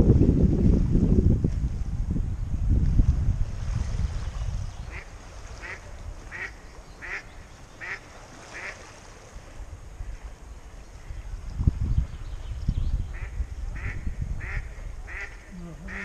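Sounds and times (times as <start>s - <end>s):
wind rumbling on microphone: 0.0s - 16.0s
duck quacking: 7.8s - 8.0s, 13.2s - 16.0s.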